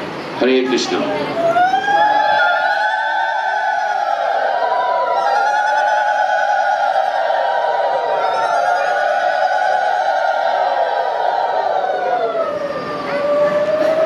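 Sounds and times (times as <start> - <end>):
voices singing devotional chant: 1.7 - 12.4.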